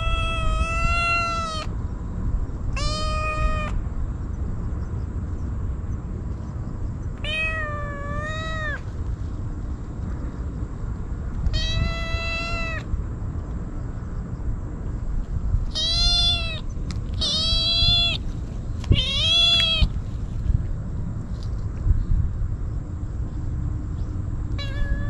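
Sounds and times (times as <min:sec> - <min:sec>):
kitten meowing: 0:00.0 - 0:01.7, 0:02.8 - 0:03.8, 0:07.2 - 0:08.9, 0:11.5 - 0:12.9, 0:15.7 - 0:18.3, 0:18.9 - 0:19.9, 0:24.6 - 0:25.0.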